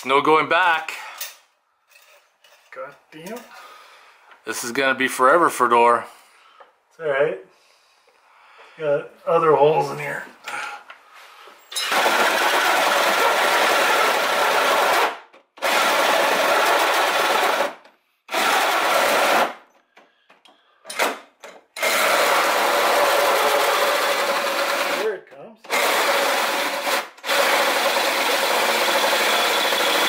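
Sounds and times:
cordless drill cutting sheet metal: 0:11.7 - 0:19.7, 0:20.9 - 0:30.0.

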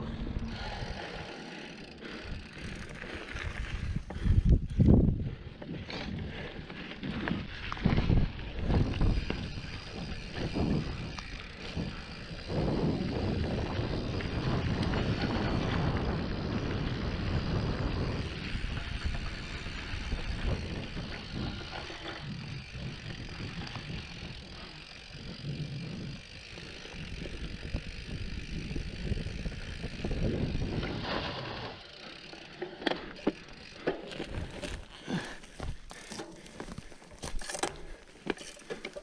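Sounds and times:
bike tyres on dirt trail: 0:00.0 - 0:39.0
bike knocks and rattles: 0:25.9 - 0:39.0.

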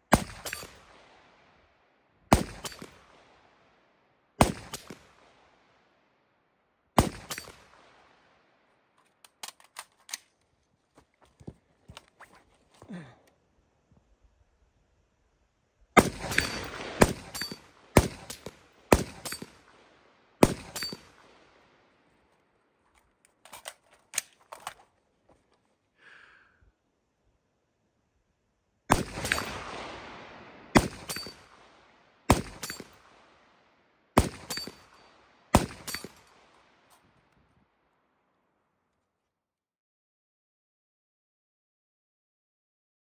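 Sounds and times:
rifle shots echoing: 0:00.1 - 0:01.6, 0:02.3 - 0:03.7, 0:04.4 - 0:05.7, 0:07.0 - 0:08.4, 0:16.0 - 0:21.8, 0:28.9 - 0:33.6, 0:34.2 - 0:36.6
gun handling clicks: 0:09.0 - 0:10.5, 0:22.9 - 0:24.9.

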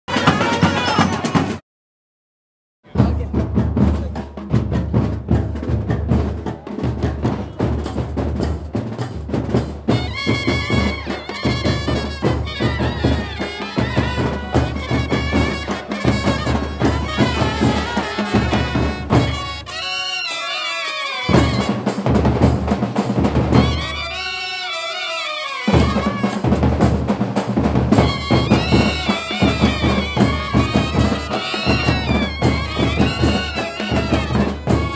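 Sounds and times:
fast drumming: 0:00.1 - 0:01.6, 0:02.9 - 0:25.0, 0:25.6 - 0:34.9
wavering wind instrument melody: 0:09.9 - 0:22.0, 0:23.5 - 0:26.6, 0:27.9 - 0:34.9.

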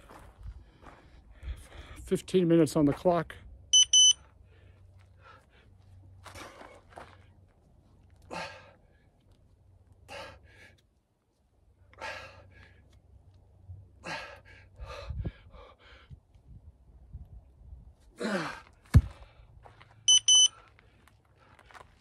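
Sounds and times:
feet shuffling on dirt: 0:00.0 - 0:02.0, 0:04.8 - 0:08.2, 0:18.8 - 0:22.0
man breathing: 0:00.5 - 0:02.1, 0:04.3 - 0:06.7, 0:08.2 - 0:09.2, 0:10.0 - 0:10.9, 0:11.9 - 0:13.0, 0:13.9 - 0:16.3.

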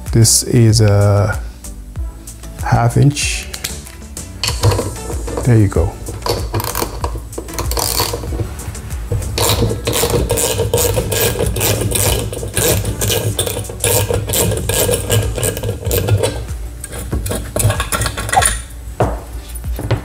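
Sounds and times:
ratchet wrench clicking: 0:04.4 - 0:08.4, 0:09.4 - 0:18.6.

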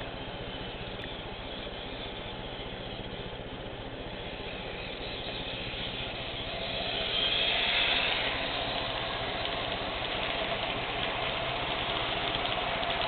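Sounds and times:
model train motor whine: 0:00.0 - 0:13.0
wheels rolling on track: 0:00.0 - 0:13.0
light clicking of wheels: 0:04.2 - 0:13.0.

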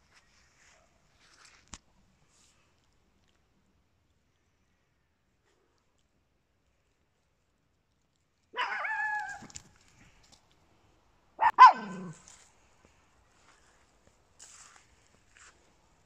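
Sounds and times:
small dog barking: 0:08.5 - 0:09.4, 0:11.4 - 0:12.2.

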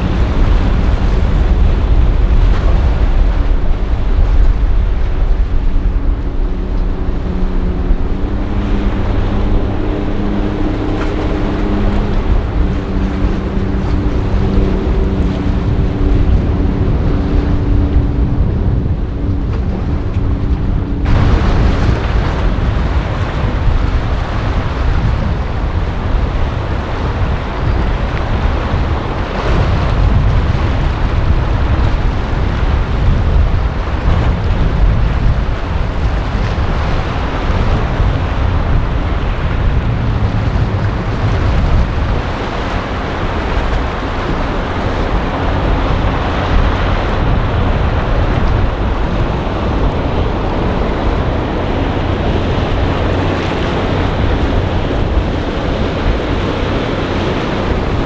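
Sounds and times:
boat engines running: 0:00.0 - 0:58.0
waves and surf: 0:00.0 - 0:58.0
wind buffeting microphone: 0:00.0 - 0:58.0.

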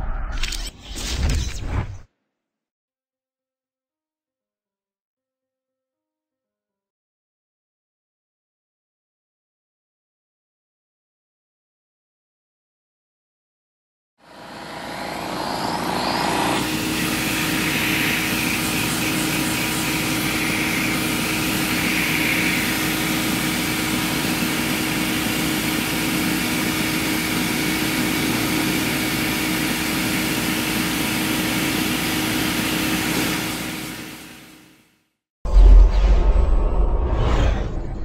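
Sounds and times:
vacuum pump humming: 0:14.3 - 0:33.9.

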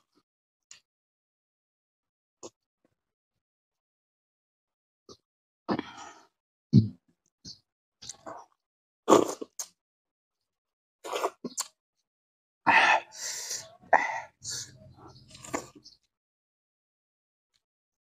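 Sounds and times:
smacking and chewing: 0:11.1 - 0:11.8.

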